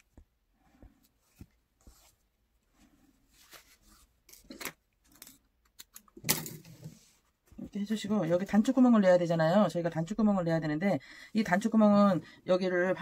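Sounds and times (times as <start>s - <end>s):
fabric rustling: 0.0s - 4.5s.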